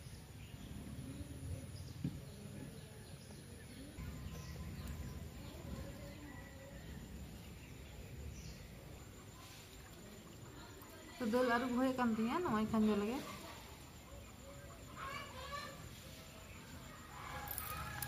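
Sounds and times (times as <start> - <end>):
faint bird chirps: 0.0 - 18.0.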